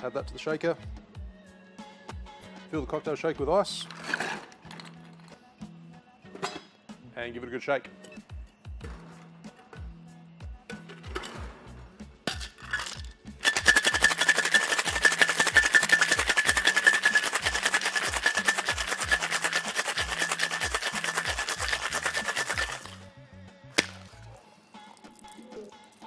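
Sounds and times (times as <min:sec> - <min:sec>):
metal tins knocking: 0:12.3 - 0:22.9
ice rattling in metal shaker: 0:12.3 - 0:23.0.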